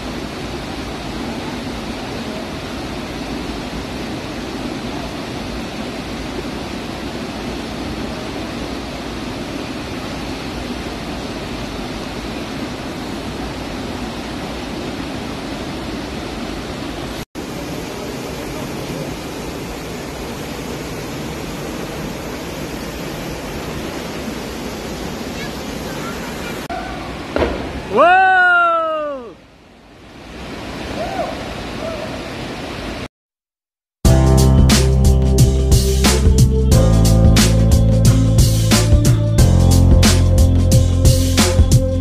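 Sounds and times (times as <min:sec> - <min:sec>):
waterfall rushing into pool: 0:00.0 - 0:33.1.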